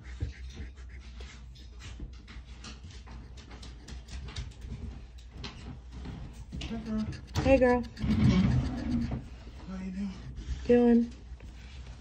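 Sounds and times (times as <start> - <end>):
scratching lottery ticket: 6.7 - 9.2.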